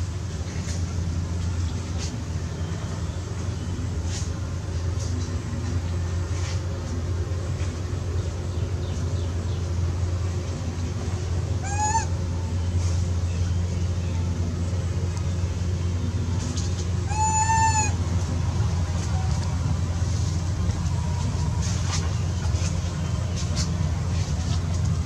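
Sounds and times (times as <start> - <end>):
steady low hum: 0.0 - 25.0
young monkey crying: 11.6 - 12.3, 17.0 - 18.0.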